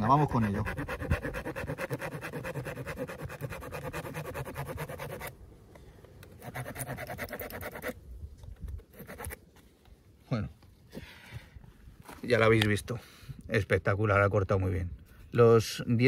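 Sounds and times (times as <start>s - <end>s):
saw cutting through stick: 0.0s - 5.3s, 6.4s - 8.0s, 8.9s - 9.4s.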